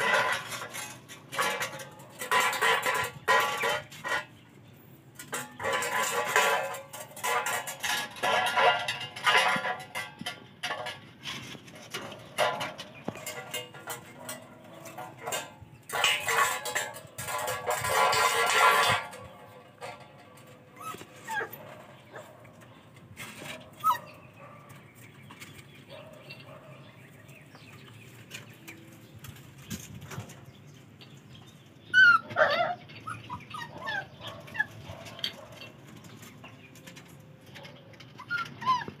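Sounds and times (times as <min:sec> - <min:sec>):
puppies whining and yelping: 0:20.4 - 0:24.4, 0:31.8 - 0:35.6, 0:37.4 - 0:39.0.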